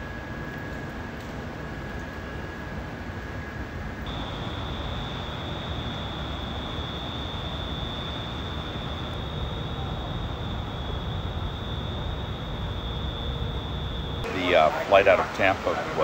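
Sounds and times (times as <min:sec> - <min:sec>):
low ambient rumble and hiss: 0:00.0 - 0:16.0
high-pitched whine: 0:04.1 - 0:16.0.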